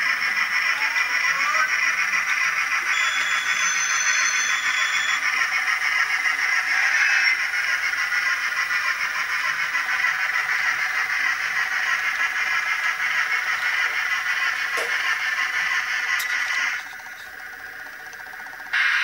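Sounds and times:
tinny steam locomotive sound: 2.8 - 7.1
high steady tone: 2.9 - 5.3.

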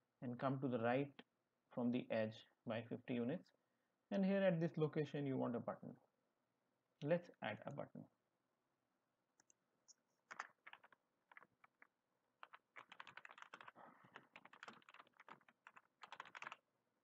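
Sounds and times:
typing on computer keyboard: 10.3 - 16.6.

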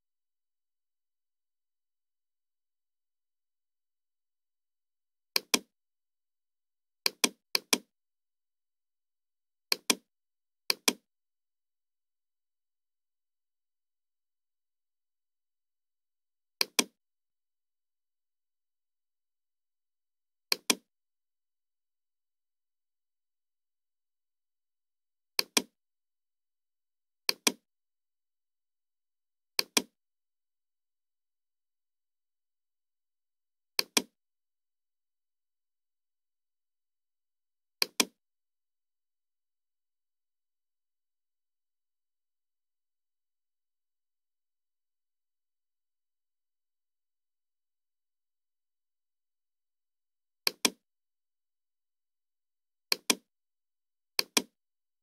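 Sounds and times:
computer mouse clicks: 5.4 - 5.7, 7.1 - 7.9, 9.7 - 10.1, 10.7 - 11.0, 16.6 - 17.0, 20.5 - 20.9, 25.4 - 25.8, 27.3 - 27.6, 29.6 - 30.0, 33.8 - 34.2, 37.8 - 38.2, 50.4 - 50.8, 52.9 - 53.3, 54.2 - 54.6.

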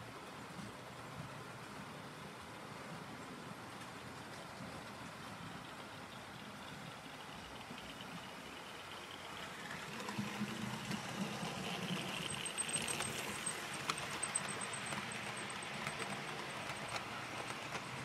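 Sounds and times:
model train wheels rattling on rails: 3.6 - 18.0.

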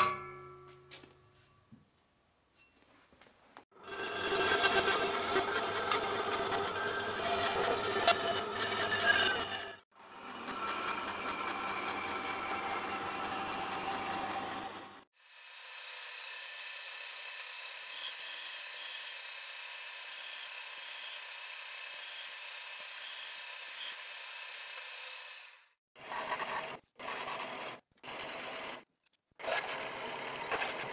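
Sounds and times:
busier machining sound: 3.8 - 28.8
drill boring into steel: 15.3 - 25.6.

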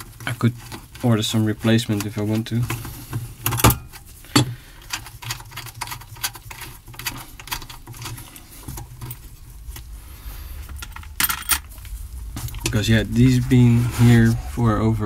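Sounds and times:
low hum: 7.0 - 15.0.

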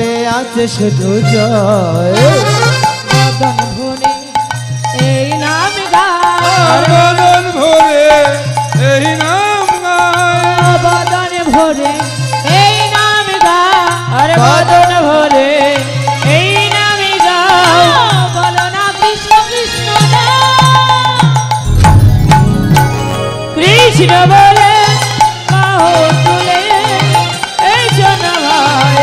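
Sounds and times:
hand drums beating rhythm: 1.0 - 29.0
wavering instrumental melody: 21.6 - 25.4.

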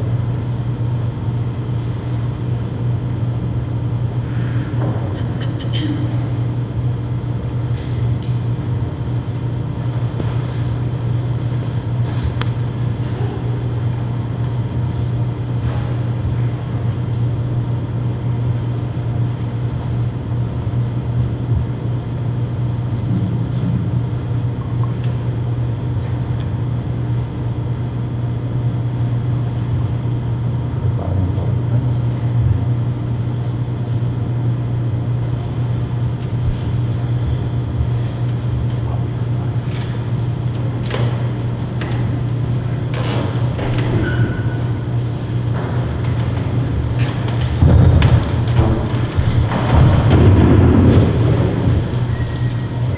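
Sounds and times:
low room hum: 0.0 - 52.9.

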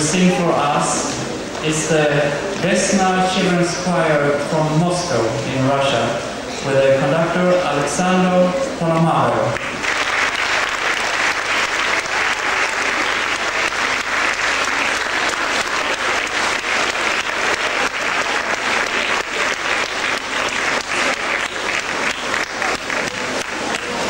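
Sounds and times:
audience applauding: 9.6 - 24.0.

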